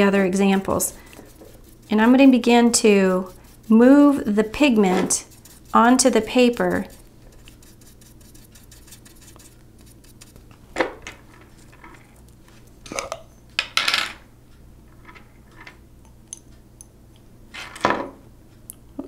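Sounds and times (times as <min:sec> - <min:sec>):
brush strokes on paper: 0:00.2 - 0:10.5.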